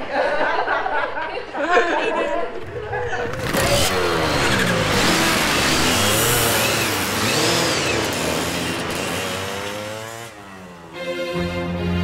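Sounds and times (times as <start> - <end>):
dirt bike engines revving: 2.4 - 11.1
slow sad music: 10.8 - 12.0.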